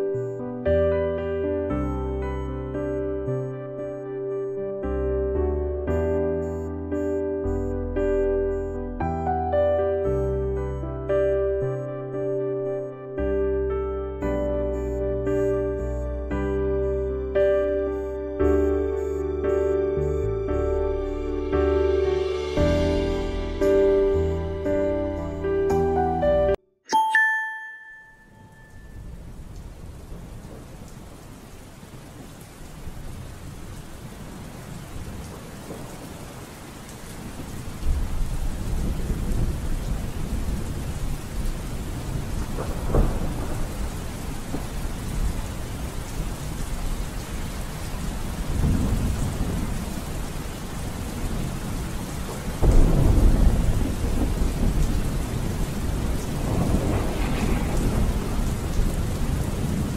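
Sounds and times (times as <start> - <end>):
steady rain: 0.0 - 9.3, 10.0 - 26.0, 28.4 - 59.9
rolling thunder: 37.2 - 59.9.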